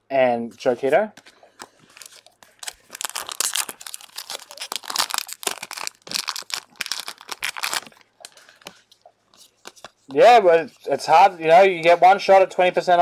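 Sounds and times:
foil wrapper crinkling and tearing: 1.6 - 8.6.

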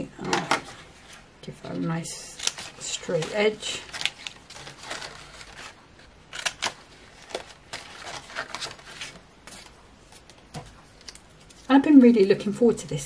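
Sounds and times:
stiff card rustling: 2.2 - 11.7.

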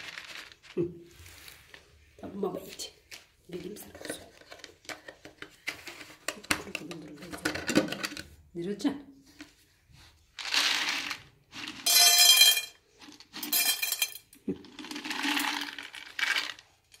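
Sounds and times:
kibble rattling into bowl: 10.4 - 17.0.

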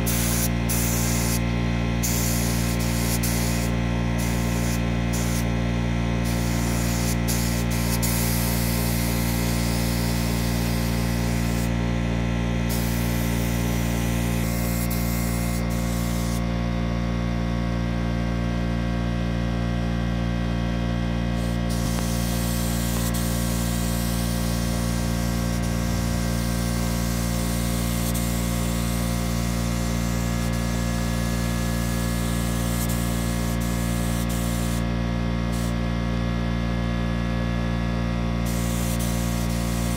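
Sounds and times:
paint spray gun hissing: 0.0 - 11.9, 12.6 - 16.5, 21.4 - 35.8, 38.4 - 39.9
steady many-toned hum: 0.0 - 39.9.

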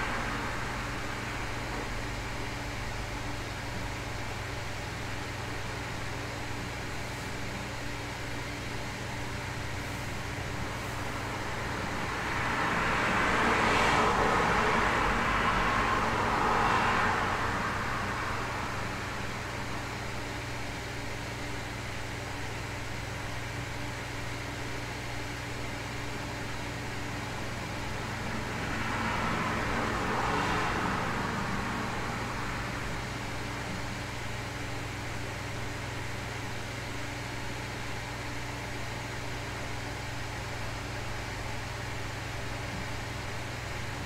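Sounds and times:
car passing by: 0.0 - 2.0, 11.0 - 19.7, 27.8 - 33.5
low constant hum: 0.0 - 44.0.

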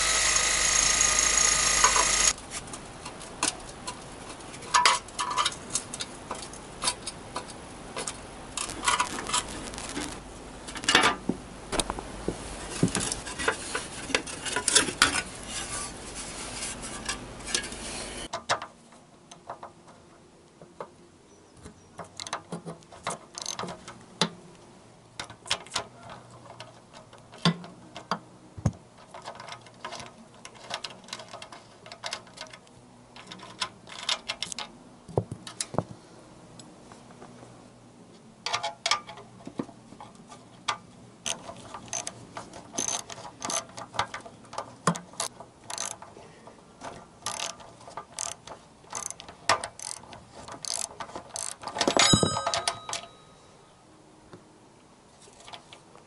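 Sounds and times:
spanner clicking on metal nut: 23.3 - 23.6, 42.8 - 46.1, 47.2 - 53.1.

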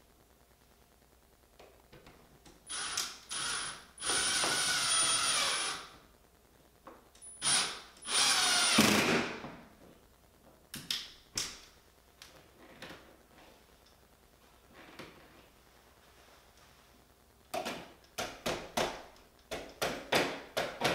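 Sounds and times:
cordless drill whine: 2.7 - 6.0, 7.4 - 9.3.

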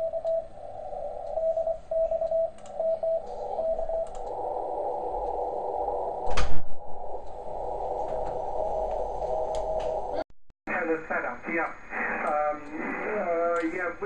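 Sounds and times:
morse code beat tone: 0.0 - 5.4
receiver hiss: 0.0 - 14.0.

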